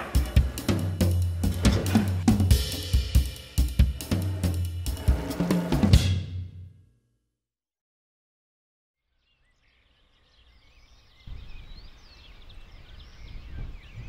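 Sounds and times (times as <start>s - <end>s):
birds chirping and singing: 9.2s - 14.0s
low wind rumble: 11.3s - 14.0s.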